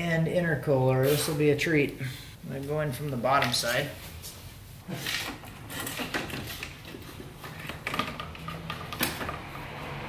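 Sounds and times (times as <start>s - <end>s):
plastic rustling and knocking: 5.0s - 9.5s.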